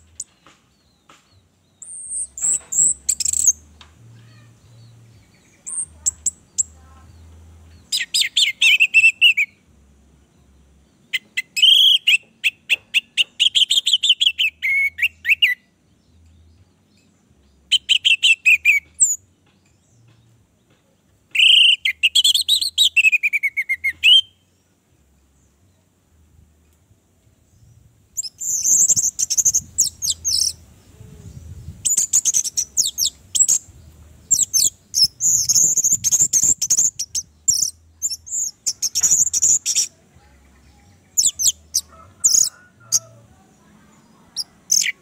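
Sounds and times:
thrush twittering song: 0.0 - 9.7, 27.2 - 43.2.

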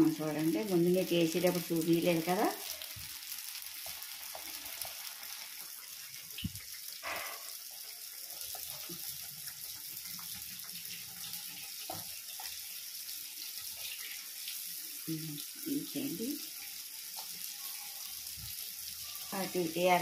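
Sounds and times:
oil sizzling: 0.0 - 20.0.

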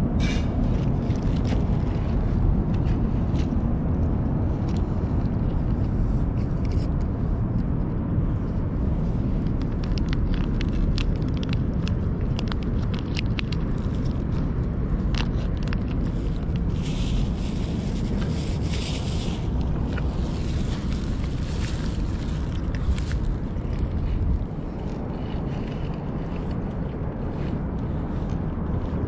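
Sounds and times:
wind rumbling on microphone: 0.0 - 29.0
cats eating from steel dish: 9.4 - 18.3.

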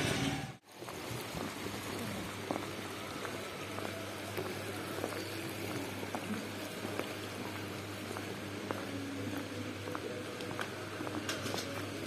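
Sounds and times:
stream running over rocks: 0.6 - 7.1.

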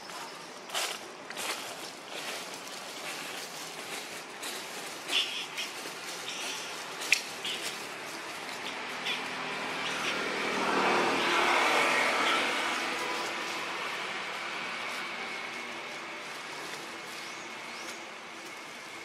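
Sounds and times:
vehicle passing by: 5.7 - 19.0.

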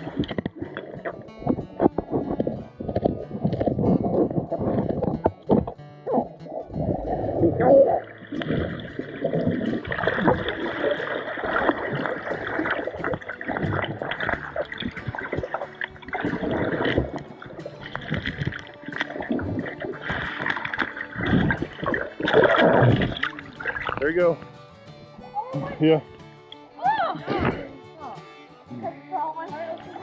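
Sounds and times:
muffled underwater water gurgling: 0.0 - 24.0.

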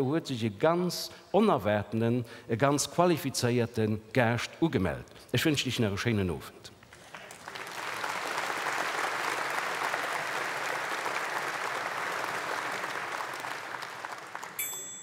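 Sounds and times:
audience applauding: 6.9 - 14.7.

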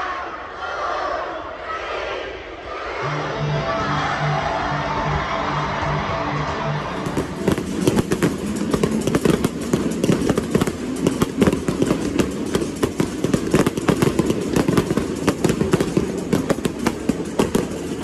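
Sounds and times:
fireworks crackling and popping: 7.0 - 18.0.

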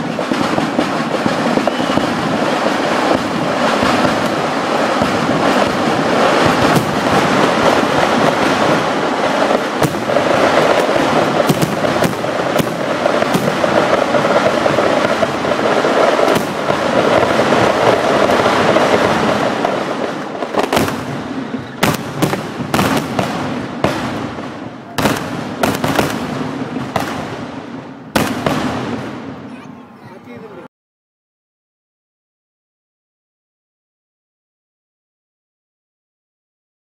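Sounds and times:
firecrackers crackling: 0.0 - 30.7
aerial shells bursting: 0.7 - 24.4.

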